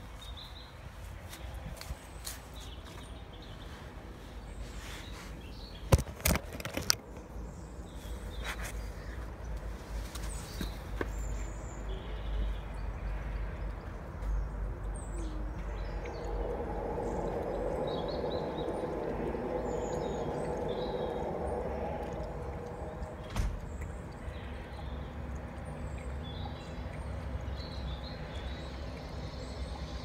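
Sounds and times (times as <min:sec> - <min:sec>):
small birds chirping: 0:00.0 - 0:30.0
low rumble: 0:12.7 - 0:25.2
steady hum: 0:13.5 - 0:25.8.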